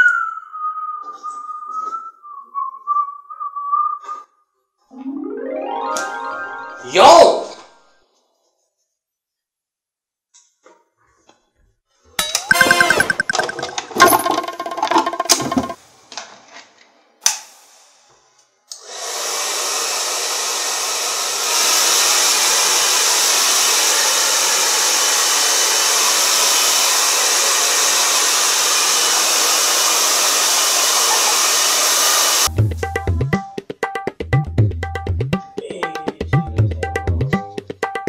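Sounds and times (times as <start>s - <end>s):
hair dryer blowing: 18.8s - 32.5s.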